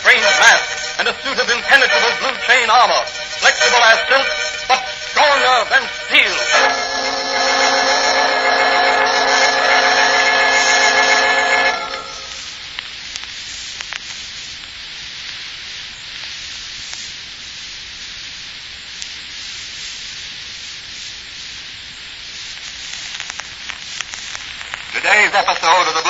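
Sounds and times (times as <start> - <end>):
record surface hiss: 0.0 - 26.0
clicks and crackle: 11.9 - 17.6, 22.4 - 26.0.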